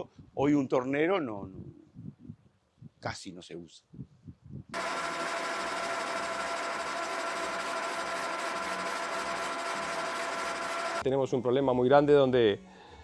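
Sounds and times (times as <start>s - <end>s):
metal lathe whining: 4.8s - 11.0s.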